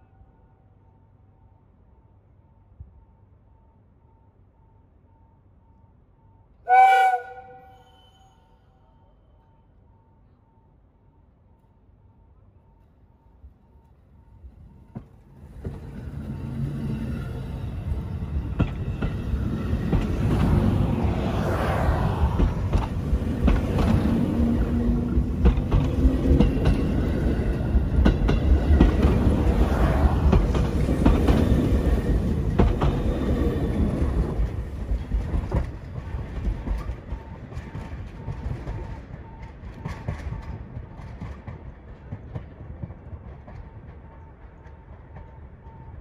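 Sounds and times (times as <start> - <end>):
electric train passing: 0.0 - 46.0
train wheels clattering over rail joints: 17.8 - 20.8, 22.3 - 45.3.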